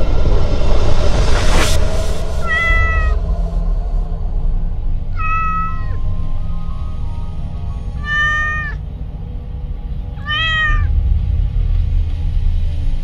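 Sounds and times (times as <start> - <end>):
cat meowing: 2.4 - 3.2, 5.1 - 6.2, 7.9 - 8.8, 10.2 - 10.9.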